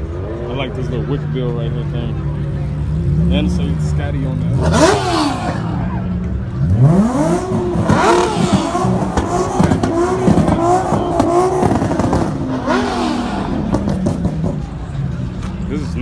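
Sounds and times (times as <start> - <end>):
car engine revving: 0.8 - 15.6.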